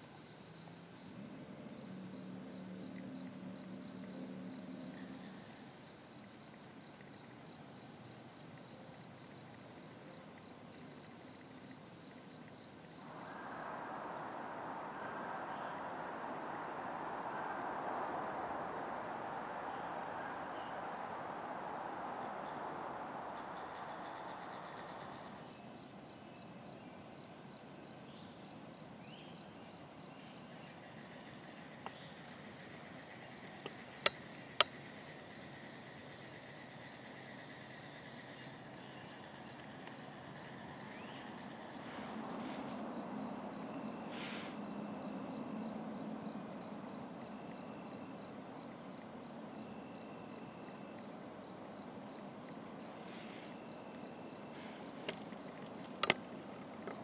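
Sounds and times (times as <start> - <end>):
high-pitched insect drone: 12.4 - 26.5.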